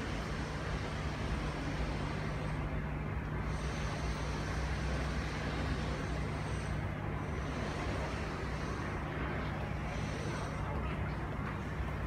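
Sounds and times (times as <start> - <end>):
faint high whine: 0.0 - 12.0.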